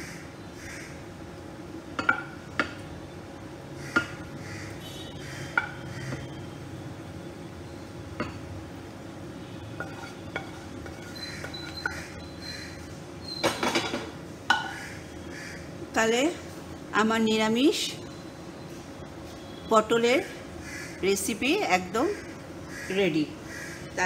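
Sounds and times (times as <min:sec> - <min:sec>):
spatula scraping and clinking: 0:09.8 - 0:12.1.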